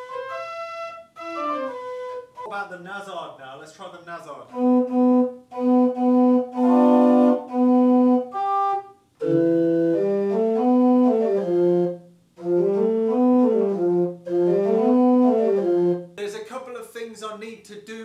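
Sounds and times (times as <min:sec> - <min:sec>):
pipe organ chords: 0:04.5 - 0:16.2.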